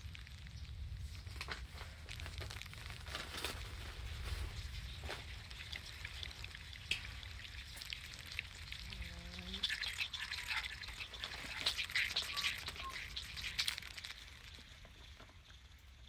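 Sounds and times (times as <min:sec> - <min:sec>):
quick crackling ticks: 0:04.8 - 0:15.7.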